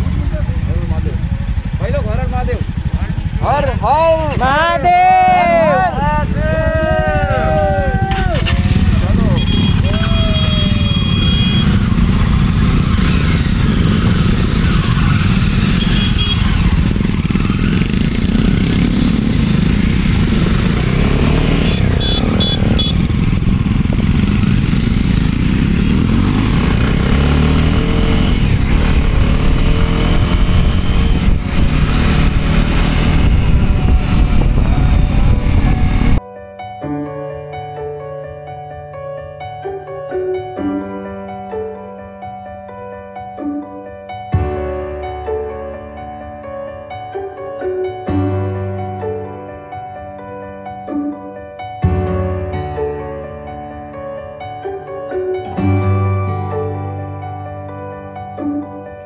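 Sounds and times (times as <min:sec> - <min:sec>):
motorcycle engines revving: 0:00.0 - 0:36.2
wind on microphone: 0:22.6 - 0:24.8, 0:27.7 - 0:36.2.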